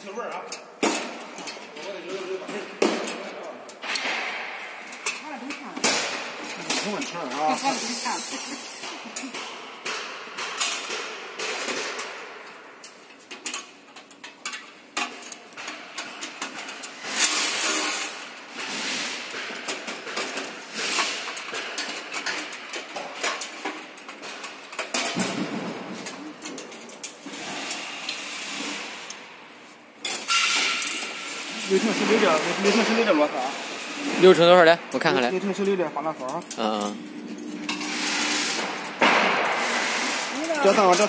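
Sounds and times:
metal parts knocking and clinking: 19.3 - 27.3.

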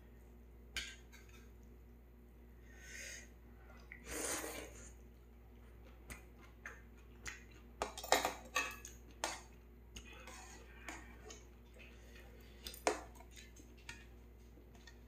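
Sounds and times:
person slurping noodles: 4.0 - 4.9
person chewing: 8.8 - 15.0.

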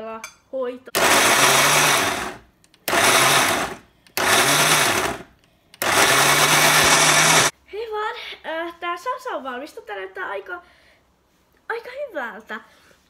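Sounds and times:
blender pulsing: 1.0 - 7.5.

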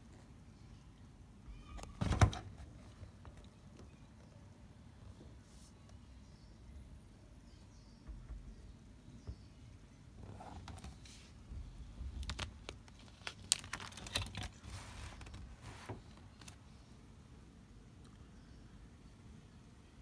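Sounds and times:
album pages turning: 12.1 - 16.6.

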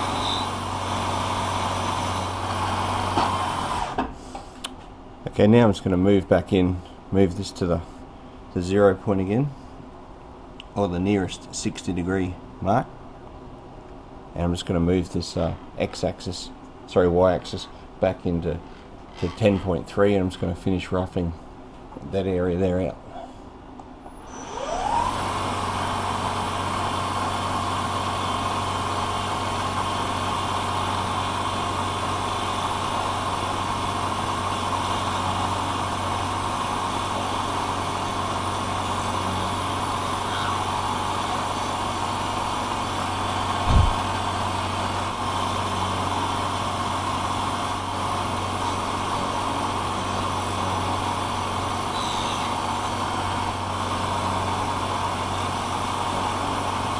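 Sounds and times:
end mill cutting brass: 0.0 - 4.0, 24.3 - 56.9
milling machine spindle whine: 0.0 - 4.0, 24.0 - 56.9
low thump: 43.7 - 44.0.

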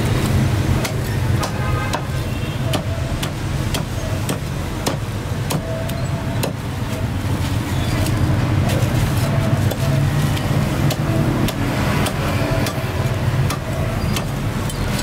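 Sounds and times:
cleaver chopping on wooden block: 0.8 - 5.7.

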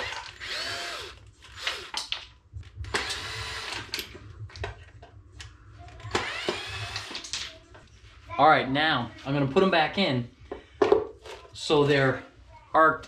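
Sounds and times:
cordless drill driving screws: 0.0 - 2.0, 2.9 - 4.0, 6.1 - 7.2.

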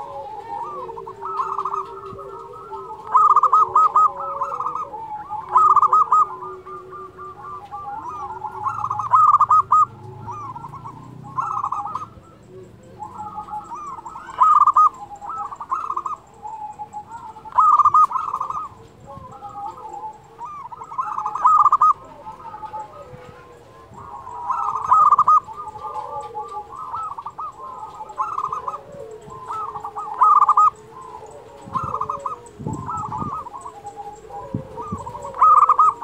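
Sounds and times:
dove cooing: 0.0 - 36.0.

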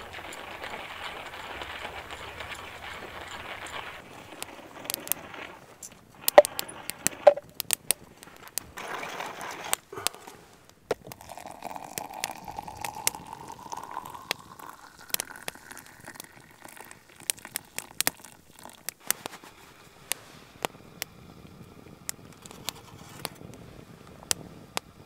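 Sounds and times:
twig fire crackling: 0.0 - 25.0
water pouring into brewer: 10.9 - 19.0.

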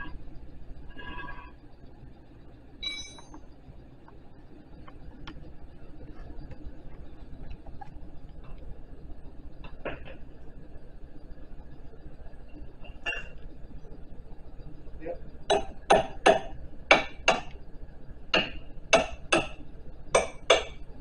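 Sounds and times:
metal clicks and clinks: 2.8 - 3.4
ringing metal clink: 2.8 - 3.4.

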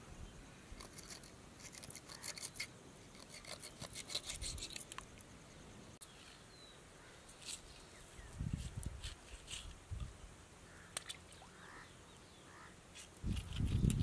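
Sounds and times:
knife scraping fish: 0.8 - 5.0.

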